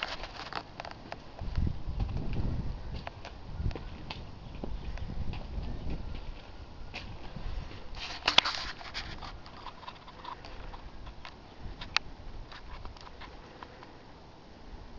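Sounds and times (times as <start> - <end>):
footsteps on cobblestones: 0.1 - 8.3.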